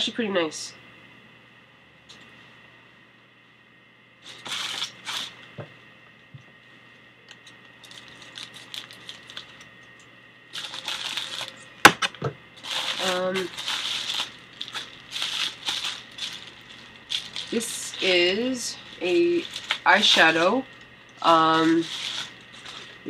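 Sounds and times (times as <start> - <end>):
plastic bag tearing: 4.3 - 5.4, 7.8 - 9.6, 10.6 - 23.0
bag rustling: 10.6 - 11.6, 12.6 - 23.0.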